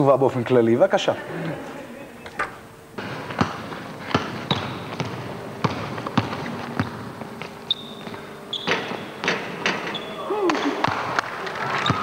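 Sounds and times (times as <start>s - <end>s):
basketball dribbling on wood floor: 3.0s - 9.8s
shoe squeaks: 4.4s - 4.9s, 7.6s - 10.8s.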